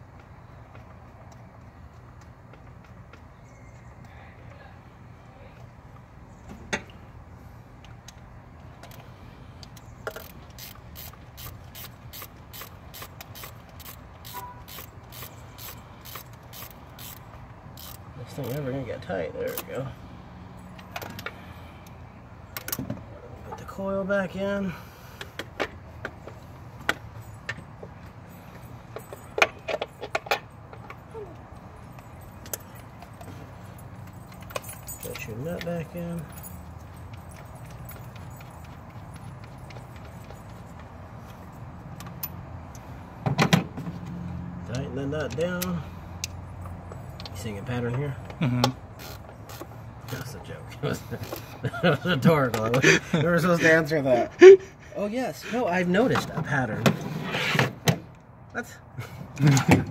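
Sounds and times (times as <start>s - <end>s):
clicks and rattles of hard parts: 7.8s - 18.6s, 25.2s - 31.1s, 34.0s - 44.2s, 59.3s - 59.9s
ratchet wrench clicking: 9.6s - 18.7s, 49.0s - 50.3s.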